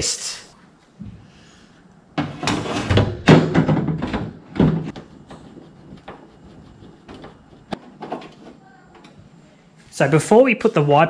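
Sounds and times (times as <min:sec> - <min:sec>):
panel scraping and knocking: 0:02.2 - 0:08.4.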